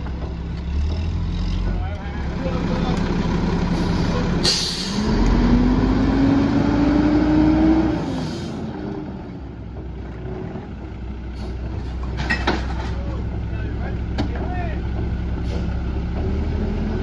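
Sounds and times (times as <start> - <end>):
diesel truck engine: 0.0 - 17.0
air brake hiss: 3.8 - 5.0
trash can clattering: 11.8 - 13.4.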